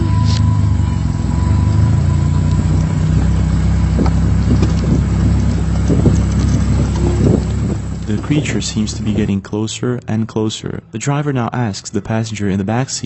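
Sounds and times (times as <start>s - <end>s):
car engine humming: 0.0s - 11.9s
knocks and rattles: 2.6s - 9.3s.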